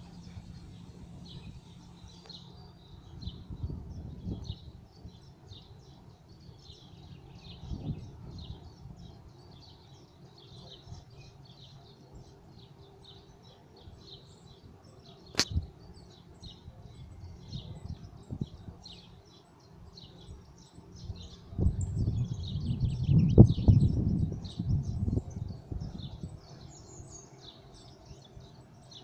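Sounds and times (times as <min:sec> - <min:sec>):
small birds chirping: 0:00.0 - 0:29.0
sharp click: 0:15.3 - 0:15.6.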